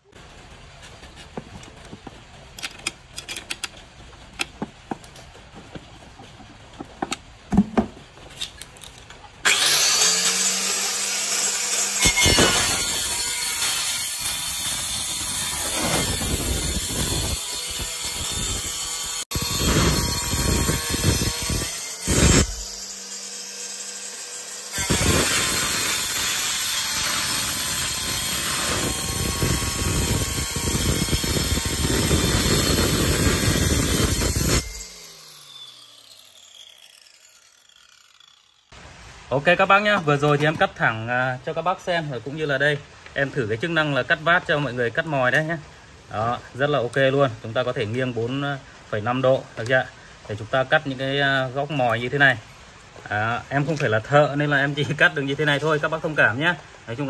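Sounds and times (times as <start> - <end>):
tile cutter grinding tile: 9.4 - 38.6.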